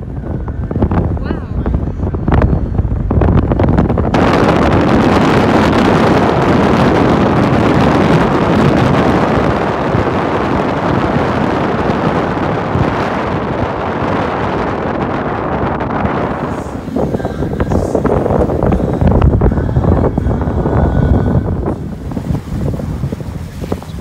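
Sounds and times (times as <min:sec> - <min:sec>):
car road noise: 0:00.0 - 0:24.0
wind buffeting microphone: 0:00.0 - 0:24.0.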